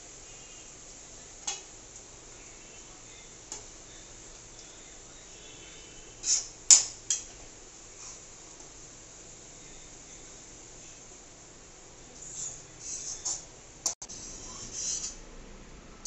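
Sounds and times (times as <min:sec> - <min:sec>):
onions sizzling in hot oil: 0:06.0 - 0:11.4.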